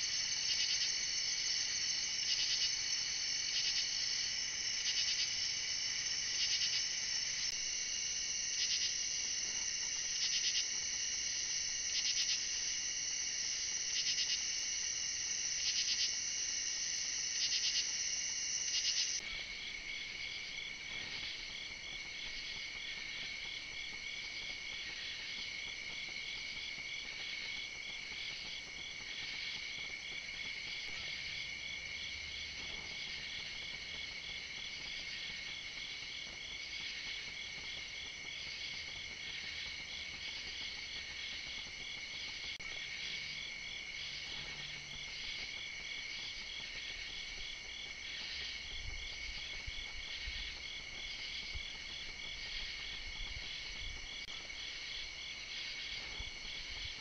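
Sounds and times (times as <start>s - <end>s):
crickets and insects trilling: 0.0s - 57.0s.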